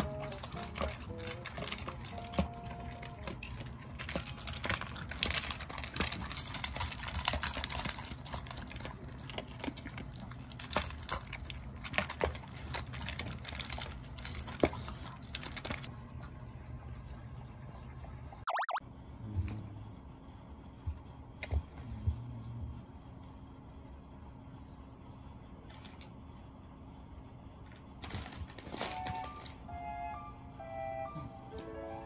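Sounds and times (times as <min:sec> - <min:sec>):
dogs eating kibble from bowls: 0:00.0 - 0:16.0, 0:28.0 - 0:29.6.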